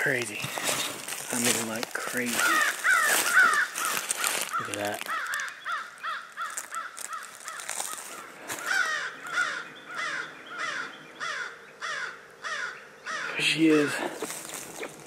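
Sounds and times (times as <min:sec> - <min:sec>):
footsteps crunching dry leaves: 0:00.0 - 0:09.6, 0:13.7 - 0:15.0.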